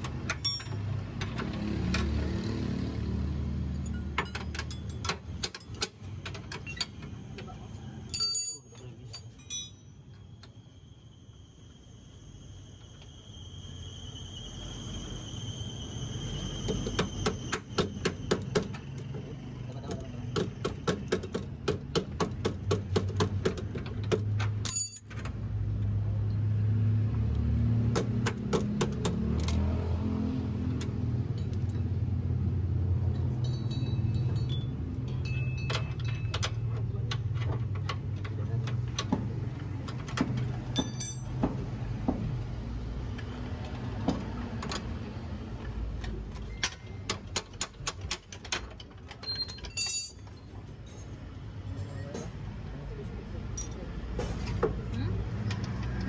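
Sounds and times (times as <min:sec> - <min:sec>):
metal tools clinking: 0:00.2 - 0:01.3, 0:03.8 - 0:07.0, 0:08.1 - 0:10.0, 0:24.2 - 0:25.3, 0:33.1 - 0:37.3, 0:40.7 - 0:41.4, 0:48.1 - 0:52.4, 0:53.5 - 0:54.6.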